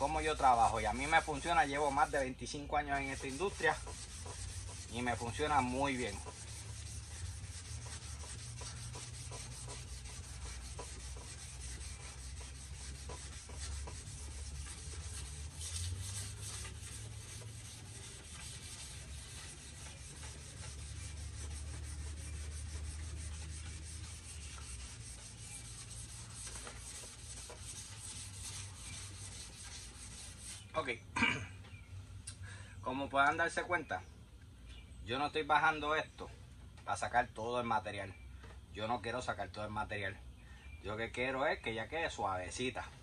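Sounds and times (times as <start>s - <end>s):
sanding block rubbing back and forth: 0.0s - 30.8s.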